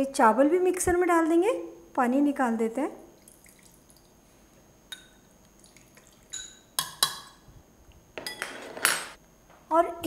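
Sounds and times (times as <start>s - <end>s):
spoon clinking against glass: 6.3s - 7.3s.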